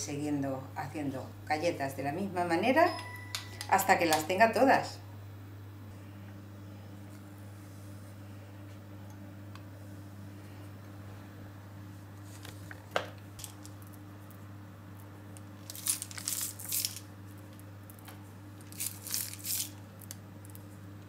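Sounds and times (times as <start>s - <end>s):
sprinkles pattering on paper: 18.6s - 20.6s.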